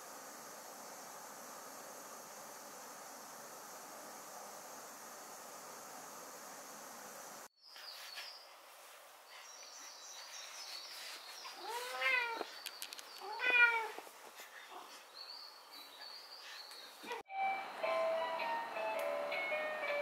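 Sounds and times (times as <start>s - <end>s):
cat meowing: 11.6s - 12.5s, 13.2s - 14.0s.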